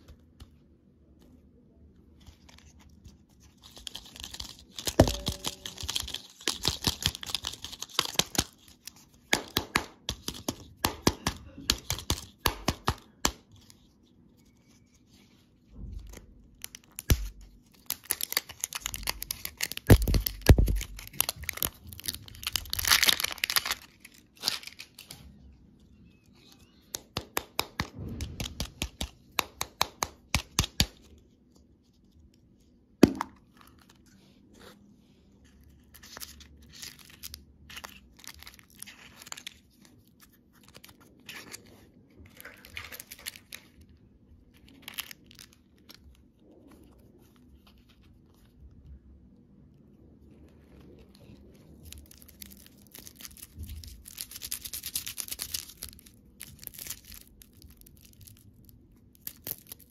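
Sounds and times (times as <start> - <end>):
wrapper crinkling and tearing: 2.3 - 9.3, 16.5 - 25.5, 35.5 - 48.5, 50.7 - 59.9.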